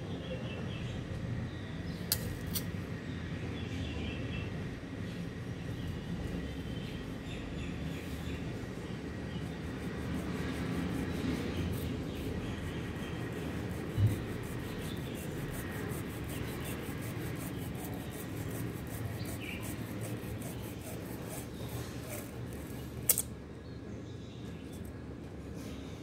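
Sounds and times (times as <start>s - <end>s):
sharp click: 2.1s - 2.7s, 23.0s - 23.4s
knife rasping on papery case: 10.0s - 23.2s.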